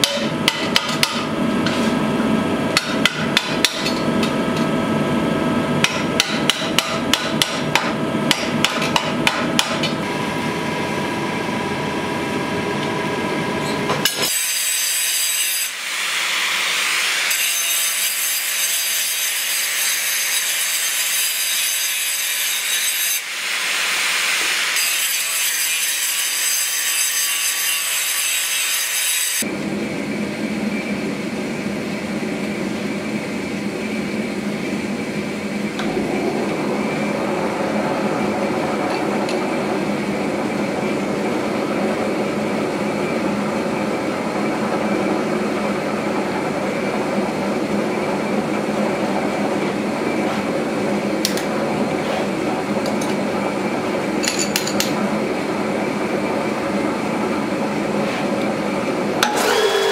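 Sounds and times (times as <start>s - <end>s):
hammer striking hot steel: 0.0s - 1.8s, 2.7s - 4.4s, 5.8s - 10.1s
angle grinder cutting steel: 13.6s - 29.5s, 59.2s - 59.9s.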